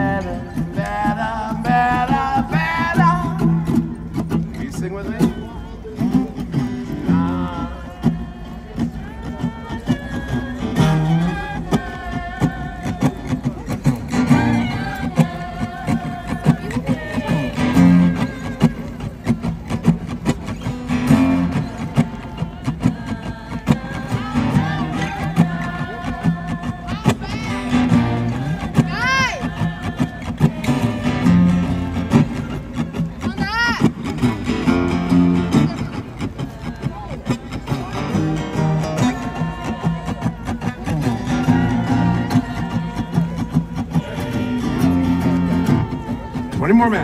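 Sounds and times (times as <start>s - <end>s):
man singing: 0.0s - 19.0s, 34.6s - 47.0s
acoustic guitar strumming: 0.0s - 47.0s.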